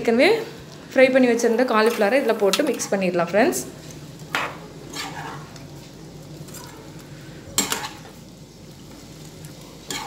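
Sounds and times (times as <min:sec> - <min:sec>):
spoon stirring in gravy: 0:03.8 - 0:05.9, 0:07.6 - 0:08.2, 0:09.5 - 0:10.0.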